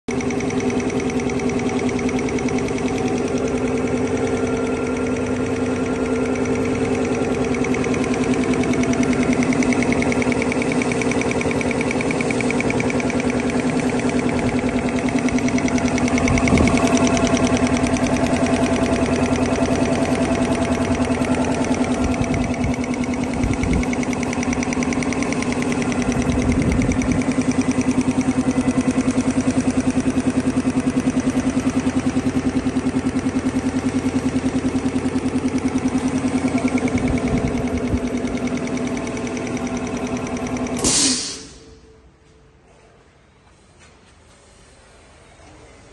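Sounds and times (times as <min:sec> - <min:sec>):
air compressor running: 0:00.1 - 0:41.9.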